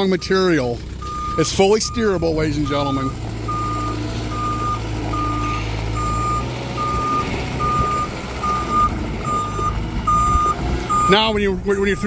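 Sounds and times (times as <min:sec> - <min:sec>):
backup alarm beeping: 0:00.0 - 0:12.0
diesel engine humming: 0:00.0 - 0:12.0.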